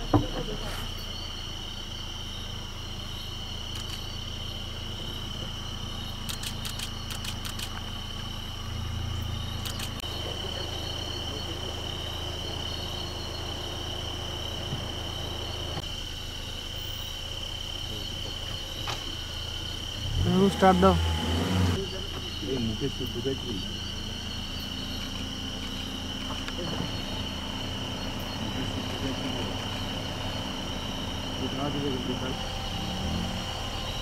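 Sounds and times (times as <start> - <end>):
crickets trilling: 0.0 - 34.0
quick run of clicks: 6.3 - 7.9.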